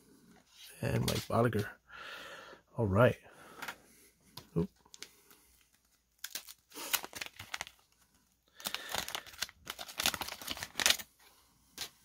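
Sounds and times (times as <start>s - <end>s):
wax paper wrapper tearing and crinkling: 5.8s - 11.1s.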